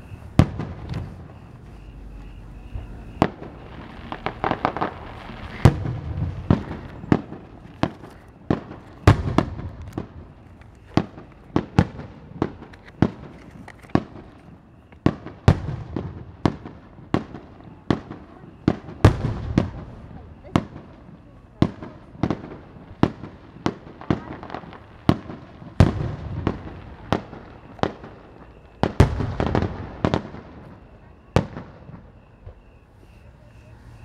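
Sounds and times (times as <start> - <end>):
firework shells bursting: 0.0 - 16.8
crackling firework reports: 0.0 - 34.0.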